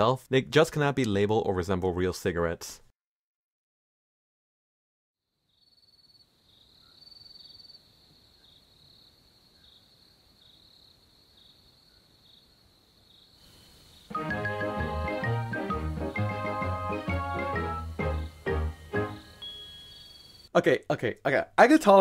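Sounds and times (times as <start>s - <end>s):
cricket chirping: 5.4s - 14.2s, 19.1s - 20.5s
hiss: 13.4s - 14.2s
loud organ music: 14.1s - 20.0s.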